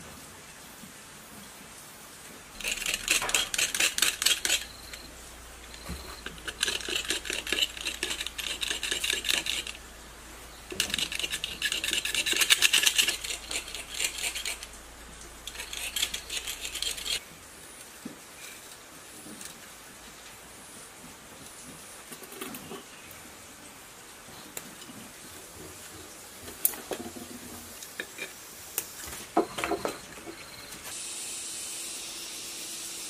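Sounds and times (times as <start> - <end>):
wire cutter clicking and scraping: 2.6 - 9.8, 10.7 - 14.8, 15.4 - 17.2.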